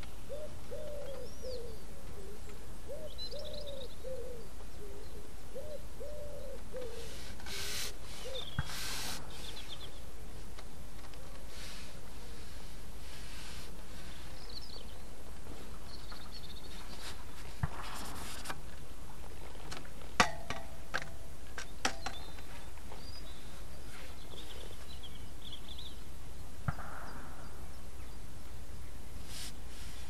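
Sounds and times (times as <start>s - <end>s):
small birds chirping: 0.0s - 11.4s, 14.0s - 17.2s, 21.6s - 29.2s.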